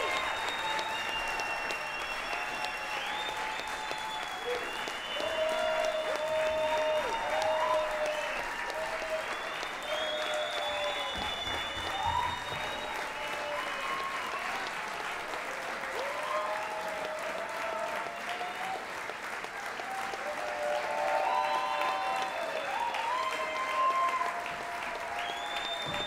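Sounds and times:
high whistles: 0.0s - 14.4s, 25.1s - 26.0s
audience applauding: 0.0s - 26.0s
shouted cheers: 0.0s - 26.0s.

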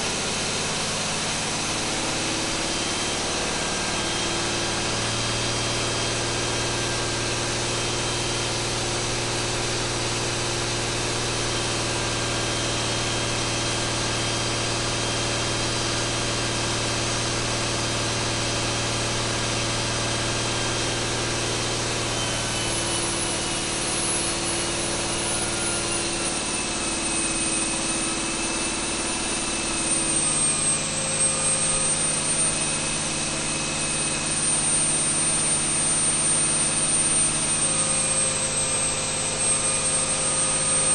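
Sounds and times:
diesel engine running under load: 0.0s - 40.9s.

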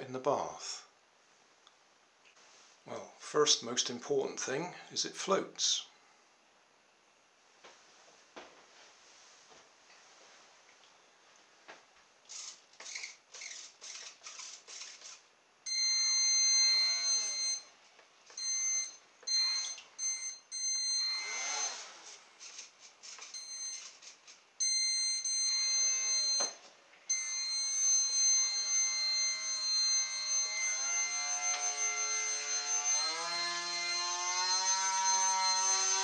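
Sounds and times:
small motor high-pitched whine: 12.3s - 17.7s, 18.3s - 36.0s.

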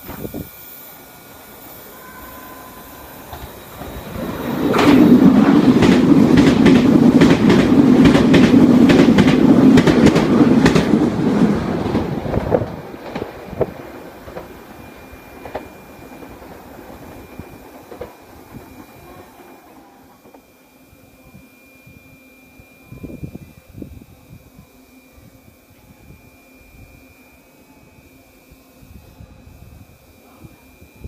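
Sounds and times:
train rumbling past: 0.0s - 21.2s
wheels clacking over rail joints: 3.3s - 14.7s, 15.4s - 20.4s.

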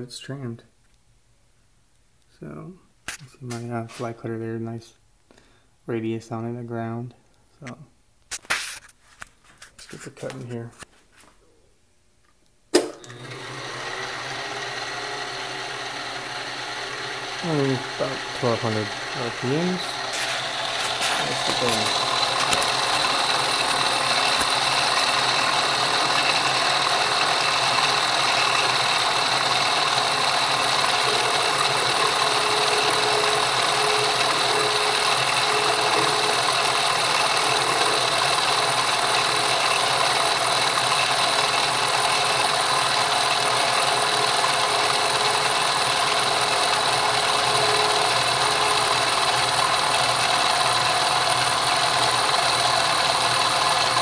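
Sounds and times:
motor and drive noise: 12.7s - 54.0s
milling machine high whine: 13.0s - 54.0s.

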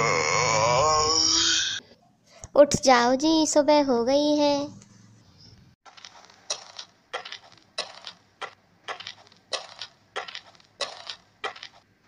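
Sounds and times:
footsteps on gravel: 5.9s - 11.9s.

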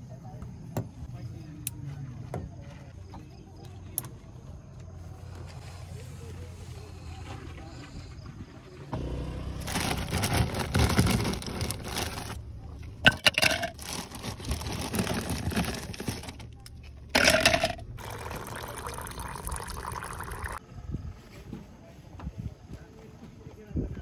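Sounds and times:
ice clinking in plastic tumbler: 9.6s - 12.4s, 13.0s - 16.6s, 17.2s - 20.6s
ice scraping and crunching: 9.6s - 12.4s, 13.1s - 16.5s.

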